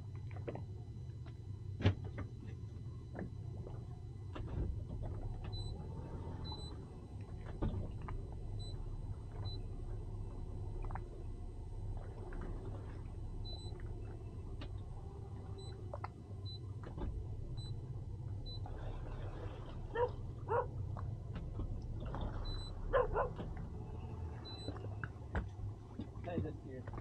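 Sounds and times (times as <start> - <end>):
outboard engines idling: 0.0 - 27.0
sharp bark-like calls: 22.9 - 23.4.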